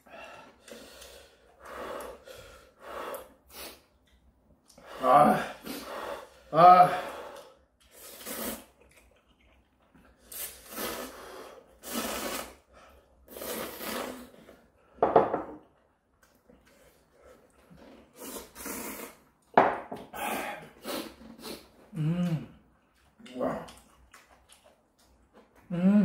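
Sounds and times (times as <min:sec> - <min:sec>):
people slurping noodles: 0:04.8 - 0:14.7, 0:16.7 - 0:19.3, 0:20.0 - 0:22.6.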